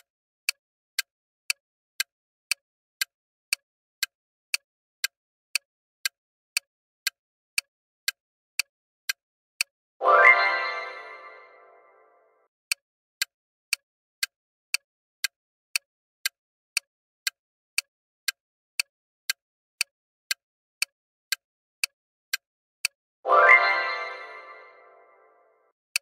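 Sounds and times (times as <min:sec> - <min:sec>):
timer ticking: 0:06.0 - 0:12.0, 0:13.2 - 0:25.4.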